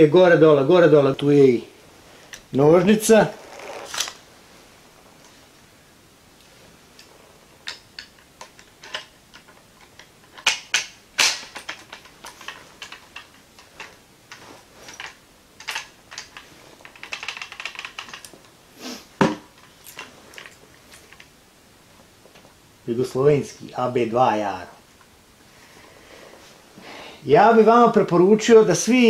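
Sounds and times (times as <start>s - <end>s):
bayonet metal clicks and rattles: 7.6s - 18.4s.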